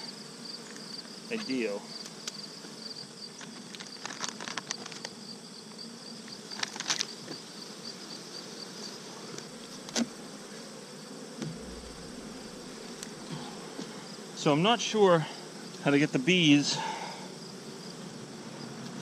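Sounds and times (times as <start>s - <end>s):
bees buzzing: 0.0s - 19.0s.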